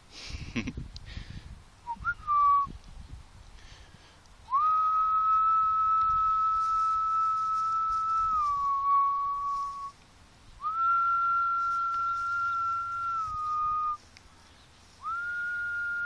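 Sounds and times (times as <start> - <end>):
person whistling: 1.9 - 2.7, 4.5 - 9.9, 10.6 - 14.0, 15.0 - 16.0
rustling and handling noise: 11.5 - 15.2.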